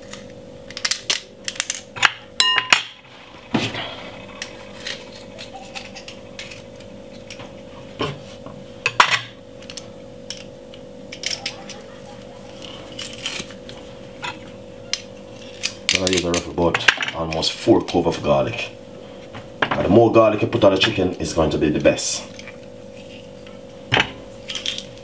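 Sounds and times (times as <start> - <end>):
steady hum: 0.0 - 25.0.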